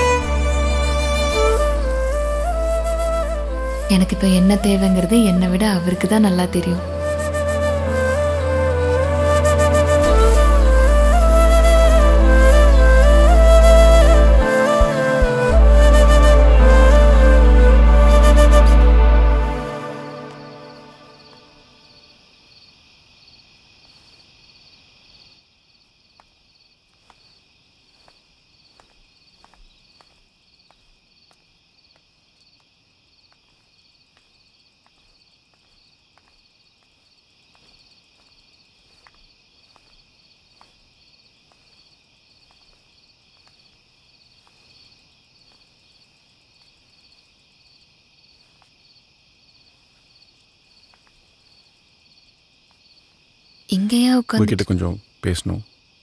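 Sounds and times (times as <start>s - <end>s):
crickets chirping: 1.3s - 56.0s
soft footsteps walking: 26.9s - 32.1s, 33.4s - 44.8s.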